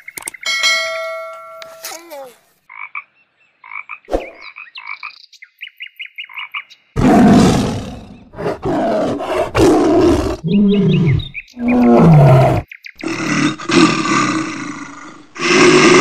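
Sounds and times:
chime ringing: 0:00.4 - 0:02.0
tiger growling: 0:07.0 - 0:16.0.

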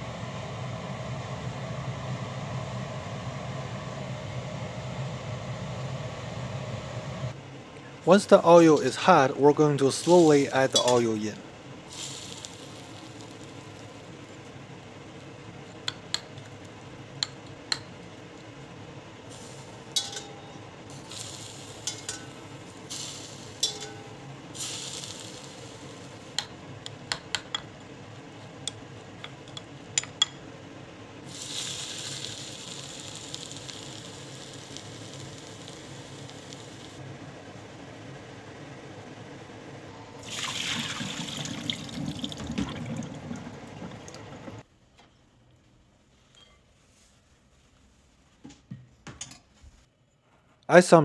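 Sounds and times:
hot oil sizzling: 0:08.2 - 0:27.6, 0:31.2 - 0:37.0, 0:40.2 - 0:44.6.

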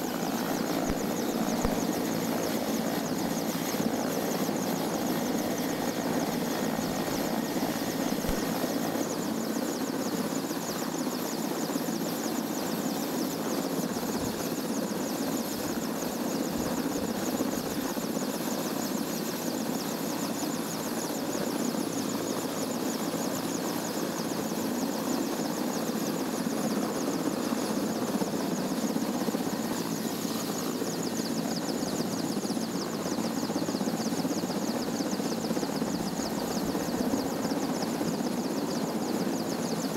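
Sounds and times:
helicopter running: 0:00.0 - 0:10.2, 0:25.7 - 0:39.9.

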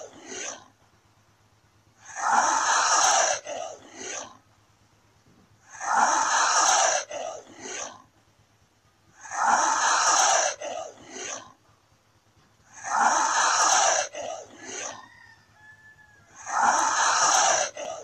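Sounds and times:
lizard hissing: 0:02.0 - 0:04.3, 0:05.7 - 0:08.0, 0:12.7 - 0:14.9, 0:16.4 - 0:17.8.

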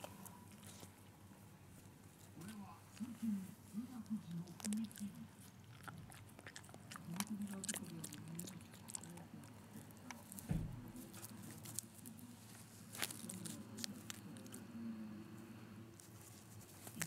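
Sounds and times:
dog chewing leaves: 0:00.0 - 0:01.1, 0:01.8 - 0:14.6, 0:16.0 - 0:17.0
soft thump: 0:10.4 - 0:11.0.

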